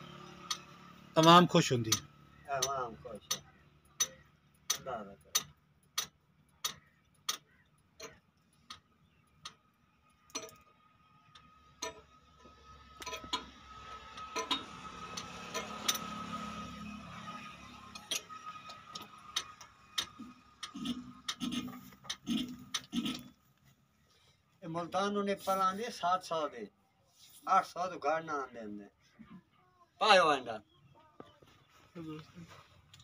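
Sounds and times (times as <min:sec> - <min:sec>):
sharp metallic clicks: 0:00.2 - 0:23.4.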